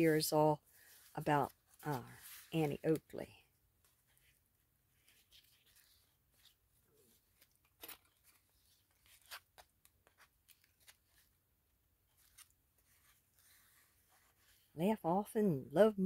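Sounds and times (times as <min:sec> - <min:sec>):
paper pages rustling and tapping: 0:07.2 - 0:11.3, 0:12.1 - 0:14.3.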